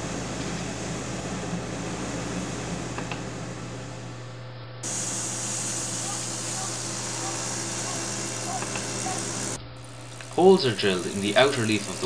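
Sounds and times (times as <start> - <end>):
compressor humming and hissing: 0.0 - 12.0.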